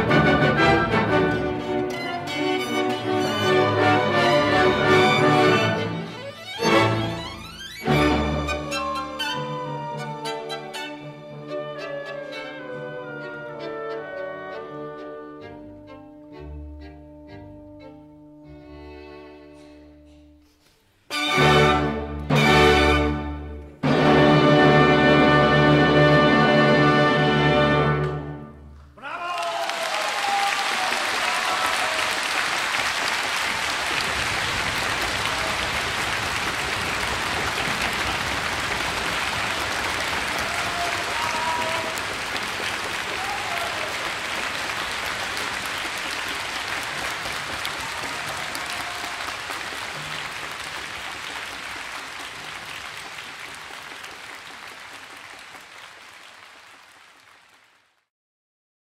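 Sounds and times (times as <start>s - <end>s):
audience applauding: 29.0s - 58.1s.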